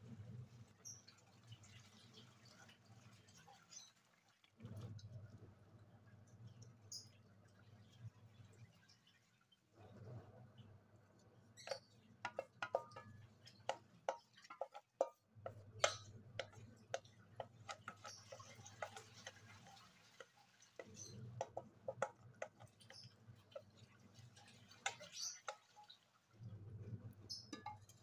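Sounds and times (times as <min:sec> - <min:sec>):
spatula scraping a bowl: 0:11.6 - 0:23.8.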